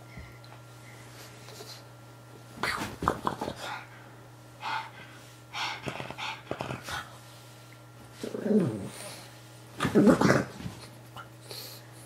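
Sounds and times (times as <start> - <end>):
dog growling: 8.2 - 9.2, 9.8 - 10.6
dog grunting and snorting: 8.2 - 9.2, 9.8 - 10.6.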